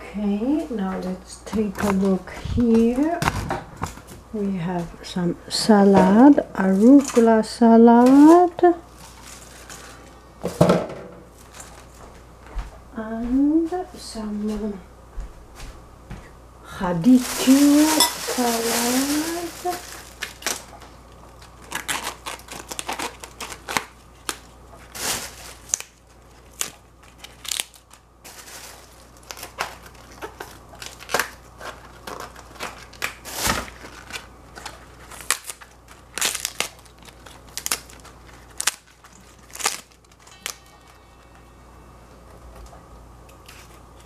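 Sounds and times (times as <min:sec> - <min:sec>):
leaves tearing with crisp snaps: 0:26.5 - 0:28.0, 0:29.3 - 0:40.6.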